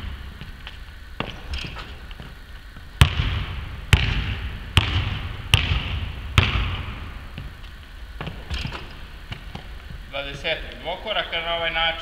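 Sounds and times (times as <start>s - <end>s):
basketball bouncing on hardwood: 1.2s - 7.6s, 8.2s - 10.1s.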